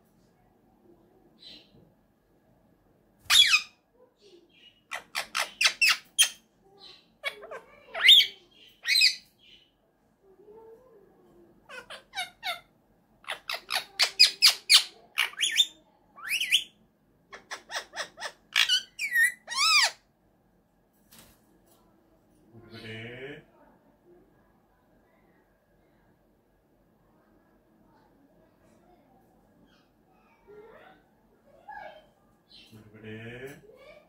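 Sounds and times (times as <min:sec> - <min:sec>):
parakeet chirping and squawking: 0:03.2 - 0:03.8, 0:04.5 - 0:09.7, 0:11.7 - 0:16.7, 0:17.3 - 0:20.0.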